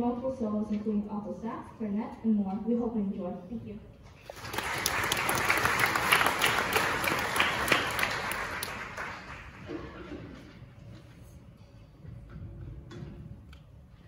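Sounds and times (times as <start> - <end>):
audience applauding: 4.3 - 9.7.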